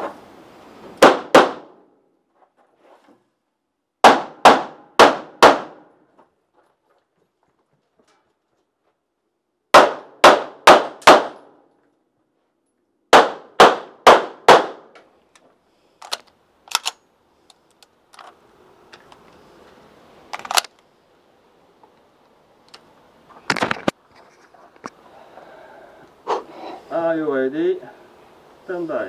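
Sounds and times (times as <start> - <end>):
handgun shots: 9.8 - 11.5.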